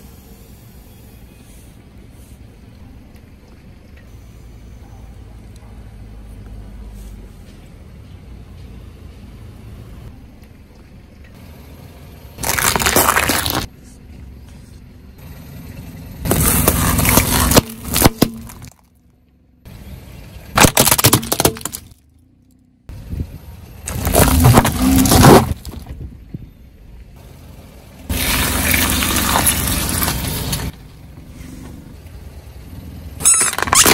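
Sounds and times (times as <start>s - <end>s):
tyre crushing small objects: 12.4s - 13.7s, 16.3s - 18.9s, 20.6s - 22.0s, 23.9s - 26.0s, 28.1s - 30.8s, 33.2s - 33.9s.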